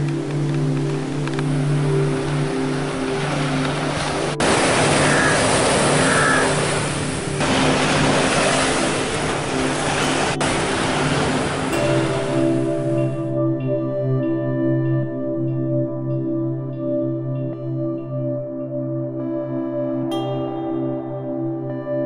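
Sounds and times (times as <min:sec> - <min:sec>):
sea surf on a beach: 0:00.0 - 0:13.6
sustained chords music: 0:00.0 - 0:22.0.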